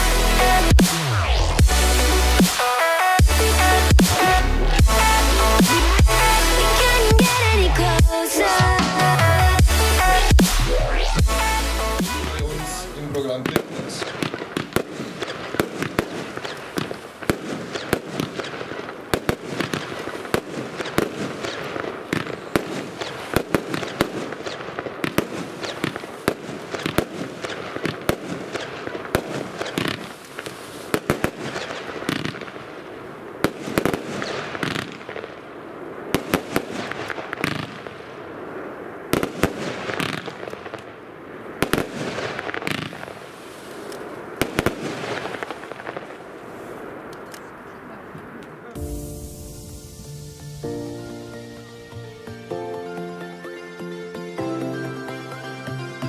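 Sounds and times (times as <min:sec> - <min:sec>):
firework hiss and crackle: 0:00.0 - 0:07.4, 0:12.9 - 0:52.1
firework bangs: 0:00.0 - 0:09.7, 0:13.0 - 0:51.7.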